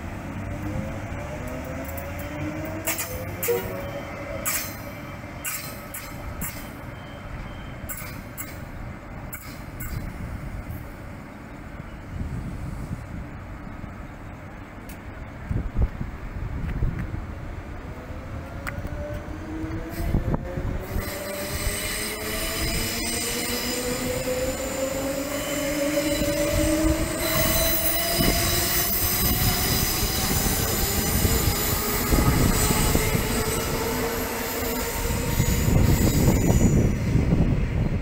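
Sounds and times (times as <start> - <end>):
electric train motors whining: 0.1 - 10.2, 18.0 - 37.9
wheel squeal: 20.8 - 37.2.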